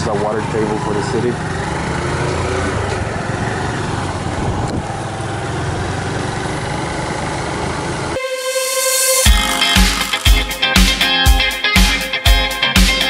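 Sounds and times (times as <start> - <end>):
small motorbike engine running: 0.2 - 8.2
guitar music: 8.2 - 13.0.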